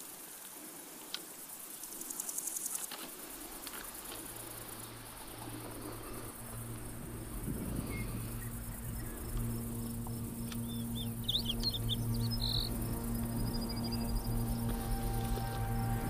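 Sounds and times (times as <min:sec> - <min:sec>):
insects chirping: 0:00.0 - 0:16.0
soft background music: 0:04.2 - 0:16.0
small bird chirping: 0:07.8 - 0:14.7.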